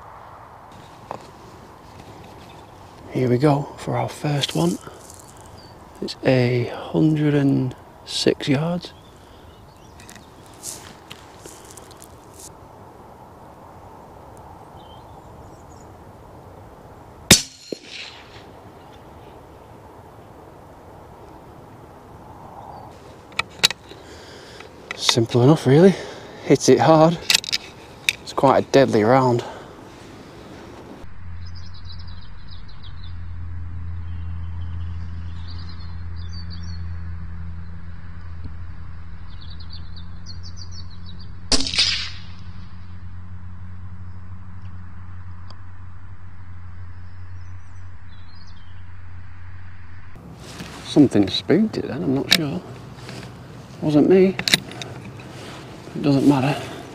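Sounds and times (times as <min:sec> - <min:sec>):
steady low hum: 0:00.0 - 0:56.9
small birds chirping: 0:00.8 - 0:12.5, 0:14.2 - 0:16.6, 0:18.6 - 0:37.9, 0:39.2 - 0:41.5, 0:46.9 - 0:48.9
bullet impact faint crack: 0:17.3 - 0:18.5, 0:41.5 - 0:42.4
rifle shot crack: 0:17.3 - 0:18.6, 0:41.5 - 0:42.5.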